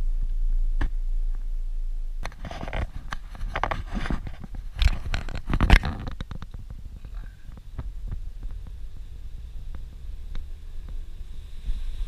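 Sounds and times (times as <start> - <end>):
low vehicle rumble: 0.0 - 12.0
clicking and scraping rattles: 2.2 - 8.7.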